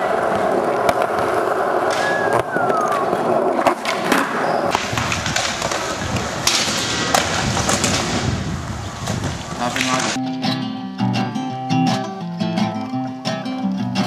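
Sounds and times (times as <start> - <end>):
skateboard wheels rolling on concrete: 0.0 - 10.2
skateboards clacking on ground: 0.0 - 10.2.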